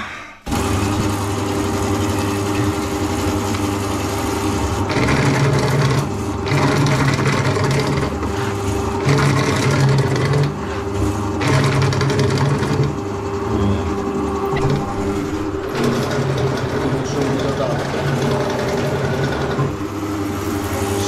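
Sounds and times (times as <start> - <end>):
drain cleaning machine running: 0.0 - 21.0
deeper hum: 10.6 - 21.0.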